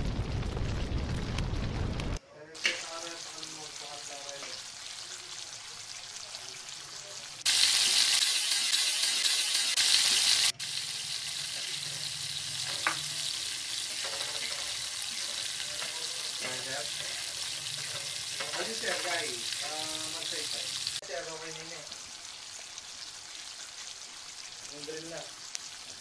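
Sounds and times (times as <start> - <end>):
garlic sizzling in butter: 2.6 - 26.0
metal ladle stirring: 11.5 - 19.4.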